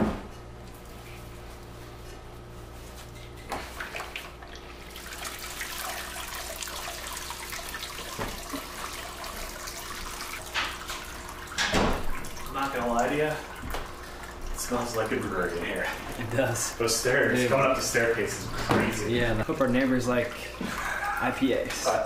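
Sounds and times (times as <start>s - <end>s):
liquid streaming and dripping: 3.5s - 22.0s.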